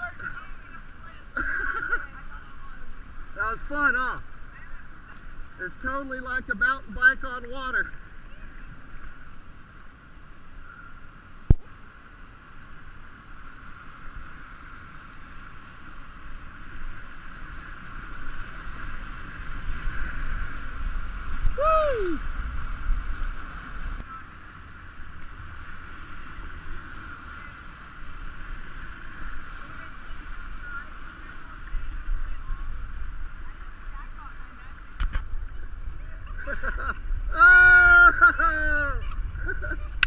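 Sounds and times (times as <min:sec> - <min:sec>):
rushing river water: 0:00.0 - 0:40.0
person shouting: 0:21.6 - 0:22.2, 0:37.3 - 0:39.0.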